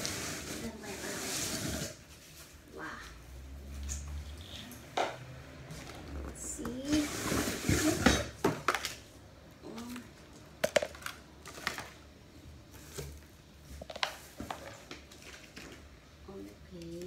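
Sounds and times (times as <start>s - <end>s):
artificial tree branches rustling: 0.0s - 4.8s.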